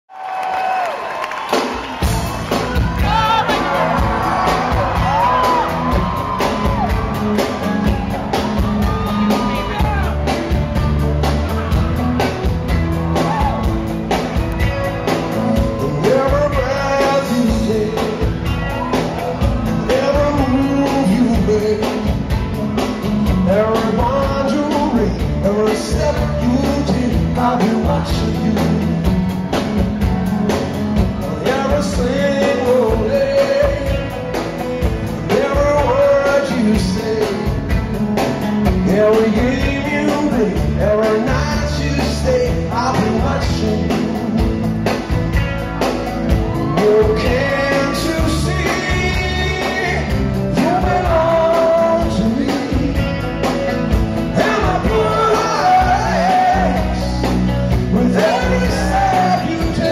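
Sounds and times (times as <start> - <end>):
drum kit: 0.5 - 59.9
electric bass: 1.9 - 59.9
man singing: 15.4 - 29.3, 31.0 - 38.0, 38.6 - 45.1, 46.5 - 59.9.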